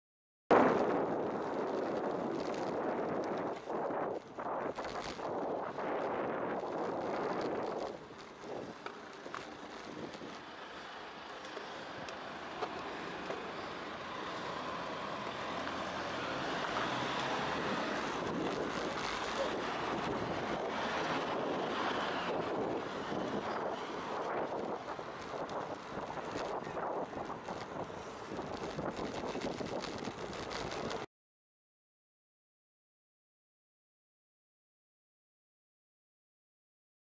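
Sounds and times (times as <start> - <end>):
wind on microphone: 0.5 - 10.4, 16.6 - 31.1
road traffic: 4.9 - 31.0.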